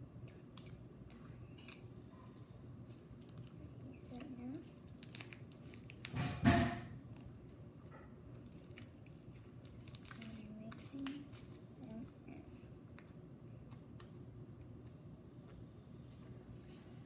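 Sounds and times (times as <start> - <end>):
slime squishing: 0.0 - 15.9
beads crackling and clicking: 2.9 - 6.2, 8.4 - 13.1.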